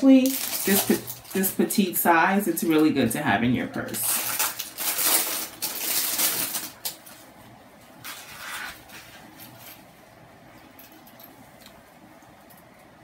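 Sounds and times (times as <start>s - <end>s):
plastic packaging crinkling: 0.0s - 3.1s, 3.7s - 7.3s.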